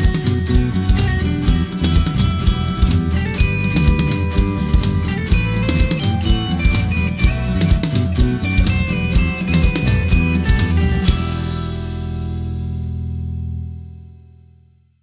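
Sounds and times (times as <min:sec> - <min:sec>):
drum kit with cymbals: 0:00.0 - 0:12.9
electric guitar: 0:00.0 - 0:14.6
electric bass: 0:00.0 - 0:15.0.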